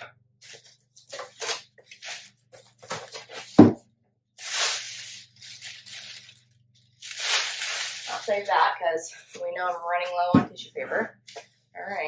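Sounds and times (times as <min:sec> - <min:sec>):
tissue paper rustling: 0:00.4 - 0:03.6, 0:04.4 - 0:09.7.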